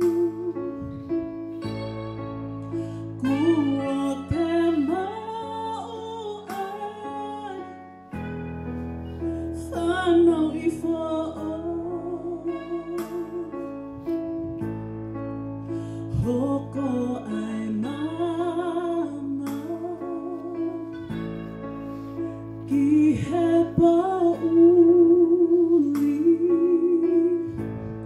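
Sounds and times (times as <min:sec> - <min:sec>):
person singing with vibrato: 0:22.6 - 0:27.7.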